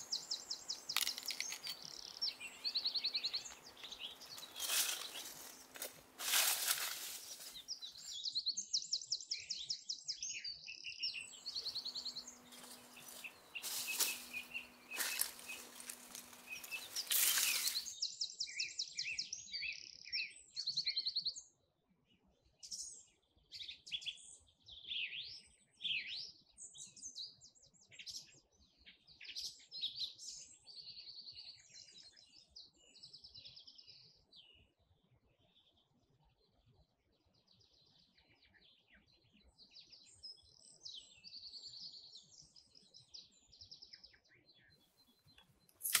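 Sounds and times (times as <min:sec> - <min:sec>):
songbirds chirping and trilling: 0:00.0 - 0:46.0
loud rustling noise: 0:04.2 - 0:07.7, 0:12.4 - 0:17.9.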